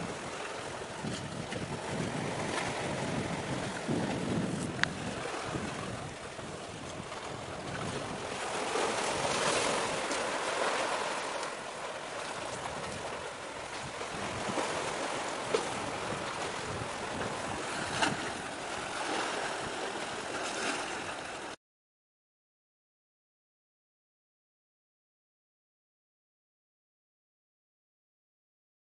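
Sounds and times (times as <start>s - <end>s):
wind buffeting microphone: 0.0s - 21.4s
waves washing: 0.0s - 21.6s.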